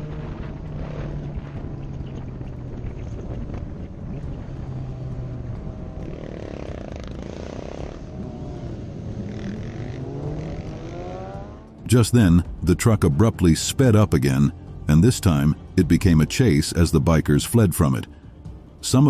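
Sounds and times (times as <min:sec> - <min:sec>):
motorcycle engine revving: 0:00.0 - 0:11.9
motorcycle engines running: 0:00.0 - 0:16.2.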